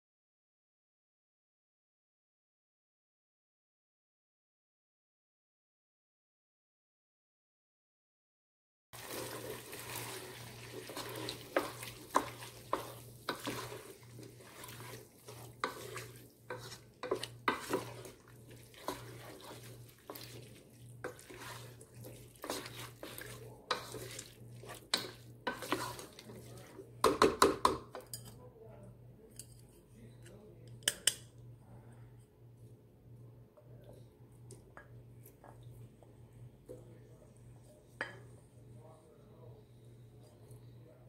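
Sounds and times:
faint sizzle: 0:09.0 - 0:27.2
wooden spoon scraping a pot: 0:09.0 - 0:28.4.

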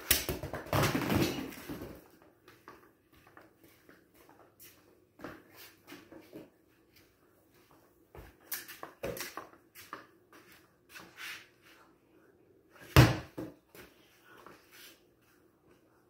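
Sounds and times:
footsteps on concrete floor: 0:00.5 - 0:11.9.

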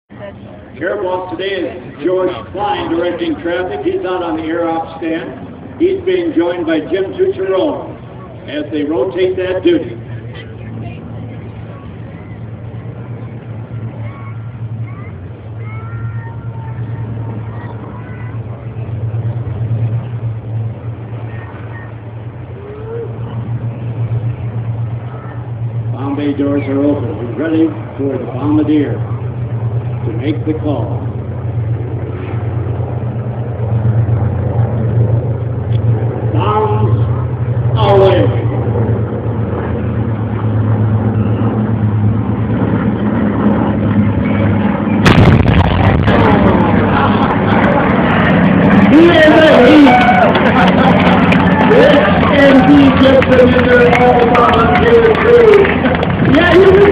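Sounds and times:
propeller aircraft engine drone: 0:00.1 - 0:56.9
pyrotechnic blast crackling: 0:43.9 - 0:54.0.

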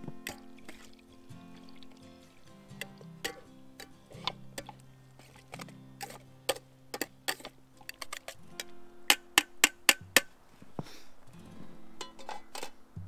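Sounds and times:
soft background music: 0:00.0 - 0:10.5, 0:11.1 - 0:13.0
sharp clicks and taps: 0:05.5 - 0:10.3.

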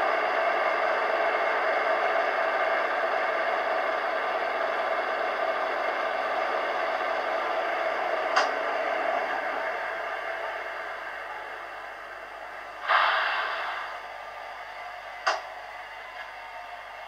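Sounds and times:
brief sharp sound: 0:12.8 - 0:14.0.

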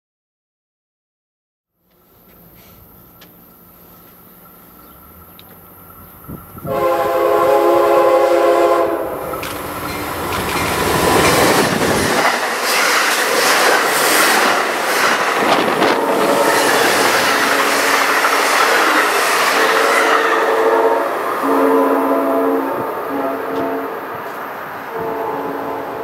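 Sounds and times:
locomotive rumble: 0:02.2 - 0:26.0
train horn: 0:06.6 - 0:09.3, 0:15.6 - 0:18.2, 0:19.4 - 0:26.0
train wheels clacking on rails: 0:09.1 - 0:21.4.

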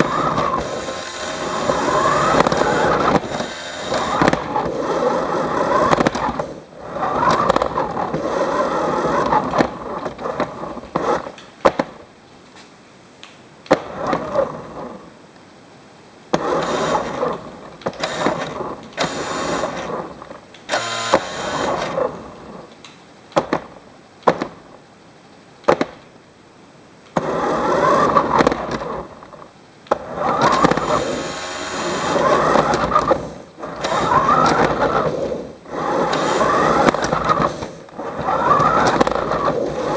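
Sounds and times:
toy car motor whirring: 0:00.0 - 0:11.4, 0:16.4 - 0:22.2, 0:27.2 - 0:29.1, 0:29.9 - 0:39.9
sharp clicks and knocks: 0:01.6 - 0:04.8, 0:05.8 - 0:06.5, 0:09.2 - 0:12.0, 0:13.2 - 0:14.4, 0:22.7 - 0:24.6, 0:25.6 - 0:26.1, 0:28.0 - 0:31.1, 0:32.0 - 0:35.3, 0:35.9 - 0:39.9.

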